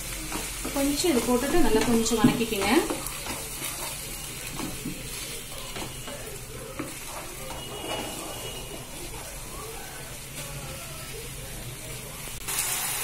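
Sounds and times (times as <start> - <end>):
low sizzle: 0.0 - 13.0
spatula scraping frying pan: 0.3 - 9.4.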